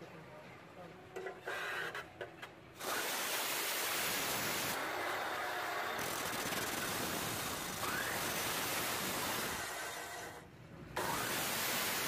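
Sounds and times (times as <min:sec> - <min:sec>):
cut-off wheel grinding steel: 0:11.0 - 0:12.0.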